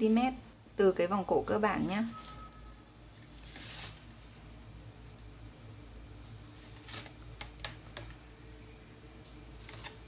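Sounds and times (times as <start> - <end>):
paper rustling: 3.2 - 5.2, 6.5 - 7.2.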